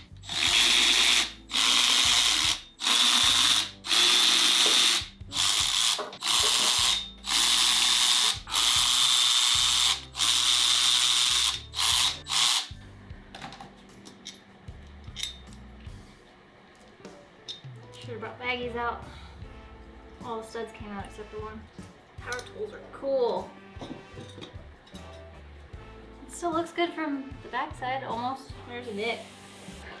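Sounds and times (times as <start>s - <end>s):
power tool bursts: 0.2s - 12.7s.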